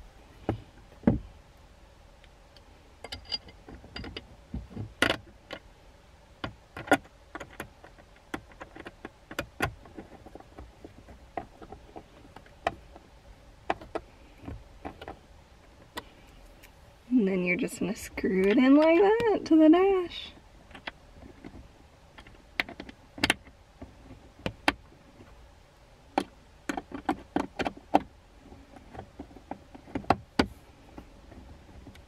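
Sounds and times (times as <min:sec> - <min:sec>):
plastic parts clicking and knocking: 0:03.0 - 0:05.7, 0:06.4 - 0:16.2, 0:20.6 - 0:25.4, 0:26.1 - 0:32.0.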